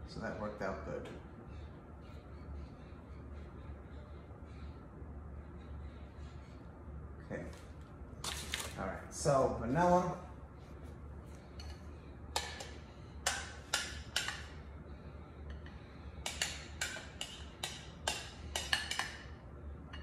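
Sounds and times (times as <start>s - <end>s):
steady low hum: 0.0s - 20.0s
spatula clicking and tapping: 11.6s - 14.6s, 15.5s - 19.3s.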